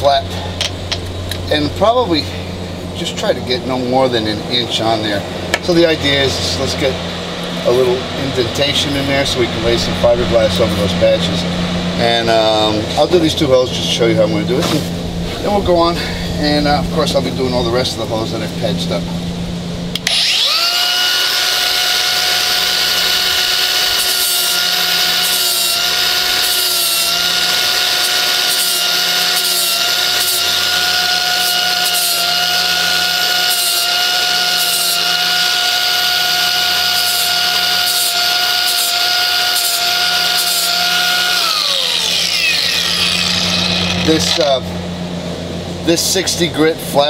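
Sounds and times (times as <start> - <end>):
angle grinder whining: 19.9 - 45.5.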